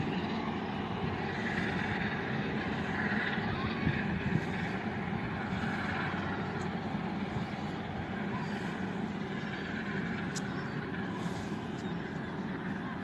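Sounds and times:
distant steam train rumbling: 0.0 - 13.0.

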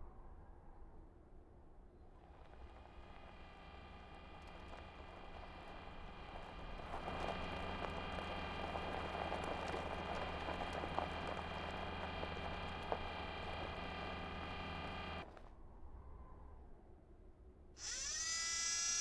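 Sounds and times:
faint low rumble: 0.0 - 17.7
mechanical motor hum: 2.2 - 15.4, 17.8 - 19.0
gritty crackle: 2.2 - 15.5.

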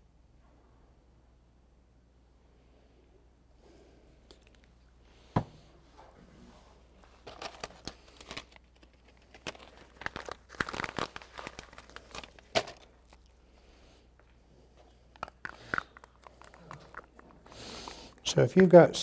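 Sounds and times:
plastic crinkling and rustling: 6.8 - 13.4, 14.2 - 19.0.

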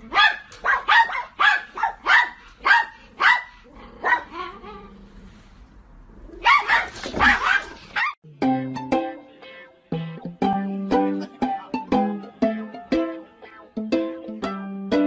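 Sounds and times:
dog barking: 0.0 - 4.5, 6.4 - 8.2.

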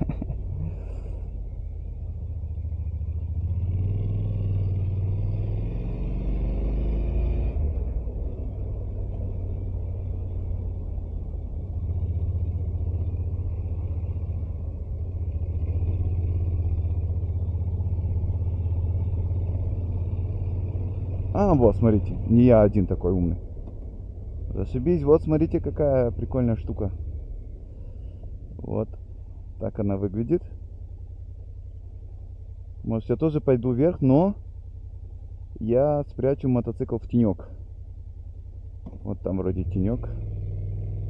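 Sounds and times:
motorcycle engine rumbling: 0.0 - 5.5, 7.2 - 41.0.

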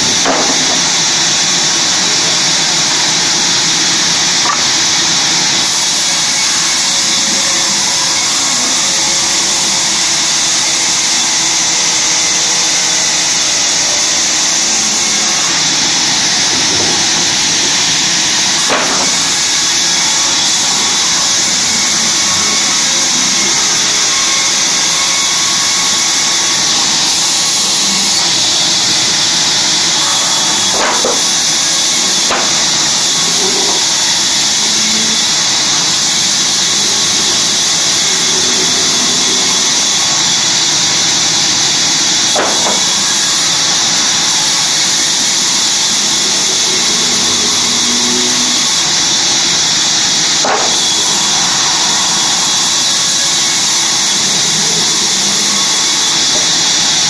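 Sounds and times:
band saw cutting wood: 0.0 - 57.0
sharp knocks: 0.2 - 0.8.

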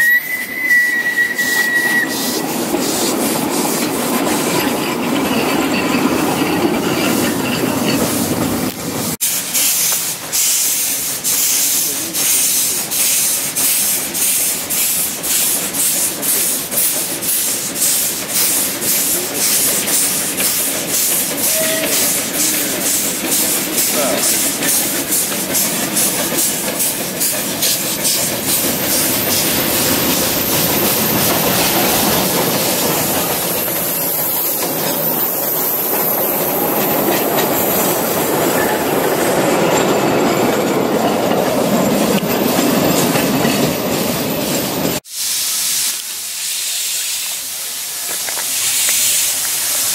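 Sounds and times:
high wheel squeal: 0.0 - 8.5, 10.4 - 45.0
steam locomotive chuffing: 0.0 - 49.9
wagons rumbling and clattering: 2.8 - 9.1.

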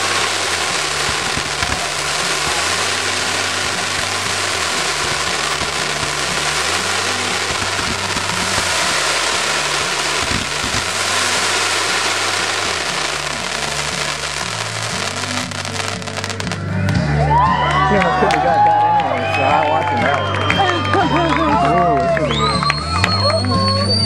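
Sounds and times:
sharp firework pops: 0.0 - 17.1
fireworks fountain hissing crackle: 0.0 - 17.2, 17.8 - 24.0.

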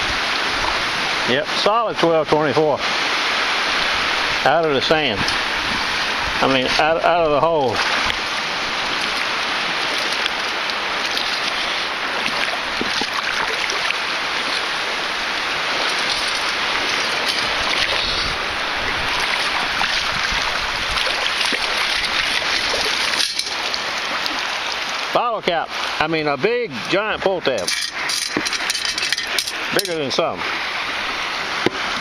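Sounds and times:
water sloshing and churning: 0.0 - 32.0
metal scoop scrapes and clicks: 15.8 - 18.2, 22.0 - 23.6, 27.6 - 30.0.

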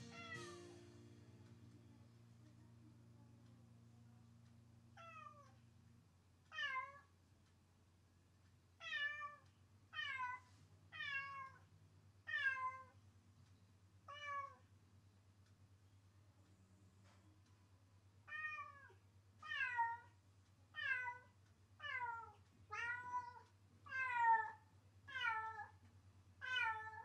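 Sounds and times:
cat meowing: 0.0 - 0.5, 5.0 - 5.6, 6.5 - 7.1, 8.8 - 11.6, 12.3 - 13.0, 14.1 - 14.6, 18.3 - 20.1, 20.8 - 25.8, 26.4 - 27.0.

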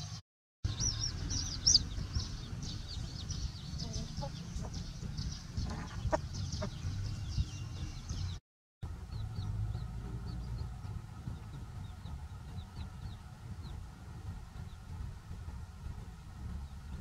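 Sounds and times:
low rumble: 0.7 - 17.0
chicks peeping: 0.8 - 8.3
chicken clucking: 5.7 - 6.8.

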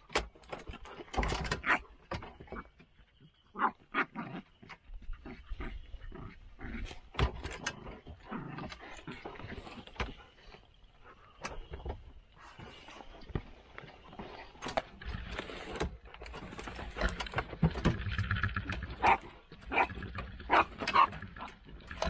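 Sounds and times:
dogs growling: 3.5 - 11.5, 14.7 - 22.0
sharp crackles and knocks: 11.4 - 22.0.

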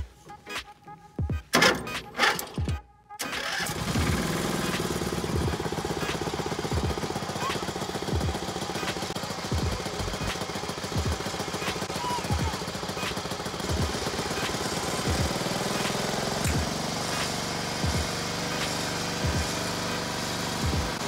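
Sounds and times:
small gasoline engine idling: 3.4 - 21.0.

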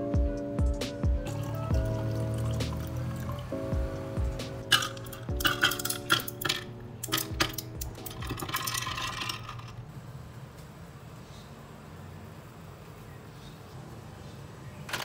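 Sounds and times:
ice cubes clinking in glass: 4.7 - 9.8
ice rattling: 4.7 - 9.8.

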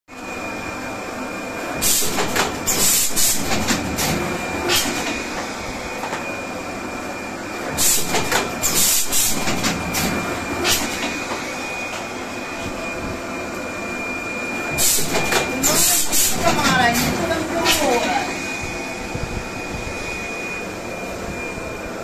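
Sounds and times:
machine hum with high whine: 0.1 - 22.0
machine clatter and hiss: 1.6 - 6.5, 7.5 - 12.7, 14.7 - 18.3.

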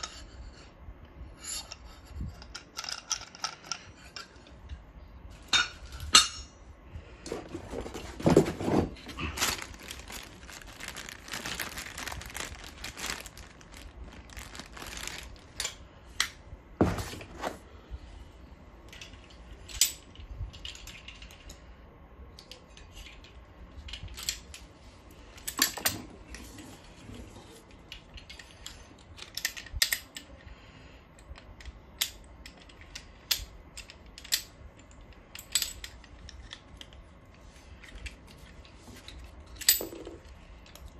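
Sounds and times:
metal parts clinking: 1.4 - 4.8, 18.9 - 21.6, 22.4 - 24.6, 27.9 - 30.4, 31.2 - 37.0, 37.8 - 40.9
plastic bag rustling: 7.3 - 15.8.

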